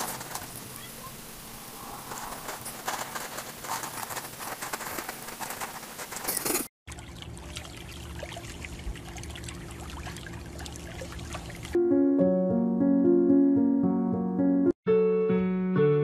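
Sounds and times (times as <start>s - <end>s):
cat scratching in litter: 2.1s - 6.7s.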